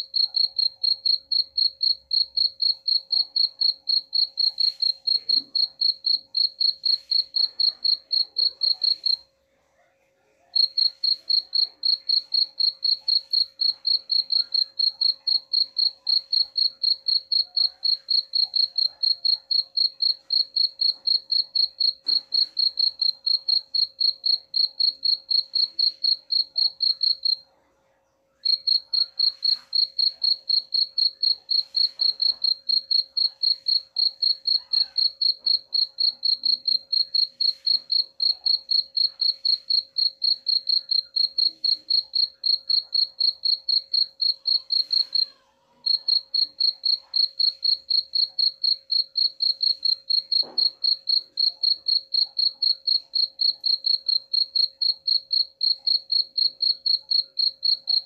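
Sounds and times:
cricket chirping: 0:00.1 - 0:09.2, 0:10.6 - 0:27.4, 0:28.4 - 0:45.2, 0:45.8 - 0:58.0.

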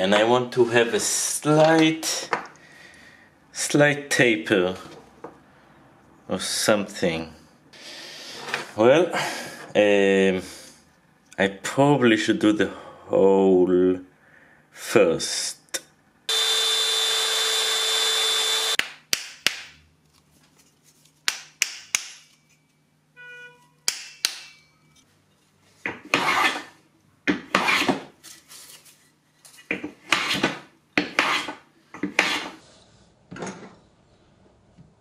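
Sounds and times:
brief ringing tone: 0:23.2 - 0:23.7.

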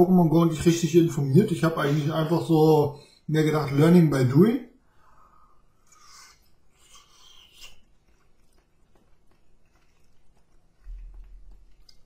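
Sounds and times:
biting and chewing: 0:06.7 - 0:12.0.

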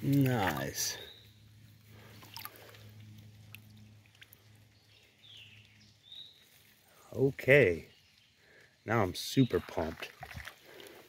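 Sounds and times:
water running over rocks: 0:00.0 - 0:01.0, 0:01.9 - 0:05.7, 0:08.5 - 0:11.0.

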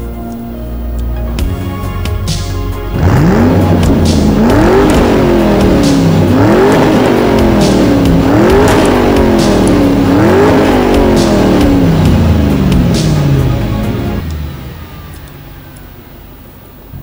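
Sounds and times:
background music with a beat: 0:00.0 - 0:14.4
car engine revving: 0:00.0 - 0:17.0.

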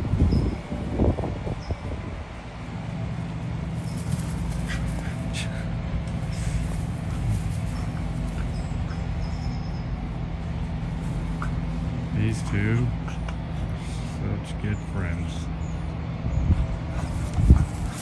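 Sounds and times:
low mechanical hum: 0:00.0 - 0:18.0
puppies playing: 0:03.5 - 0:14.2, 0:16.6 - 0:18.0.

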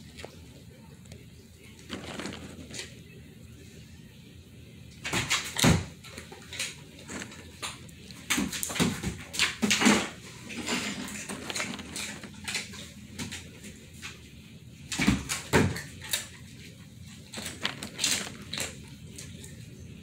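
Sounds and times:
dog claws clicking on wooden floor: 0:05.1 - 0:13.4, 0:17.3 - 0:19.4.

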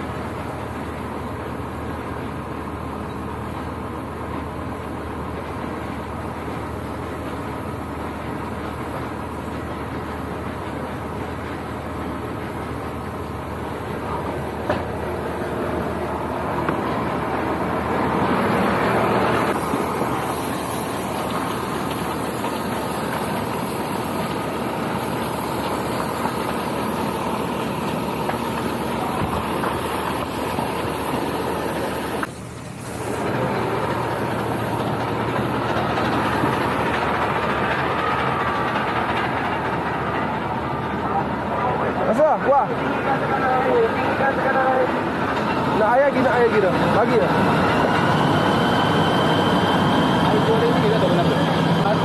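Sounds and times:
fire engine running: 0:00.0 - 0:52.0.

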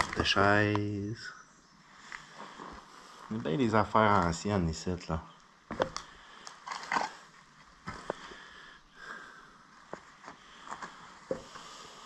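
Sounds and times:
footsteps on old wood boards: 0:07.8 - 0:08.4.

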